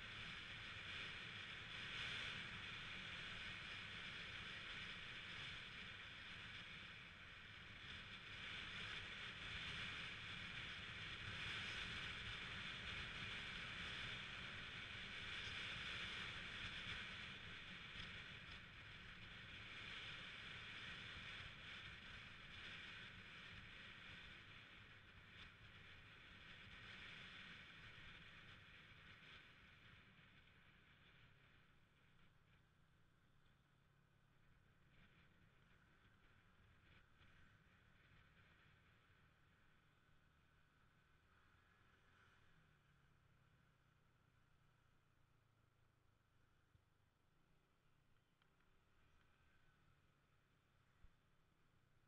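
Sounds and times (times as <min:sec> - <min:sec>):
scooter wind and road noise: 0:00.0 - 0:31.2.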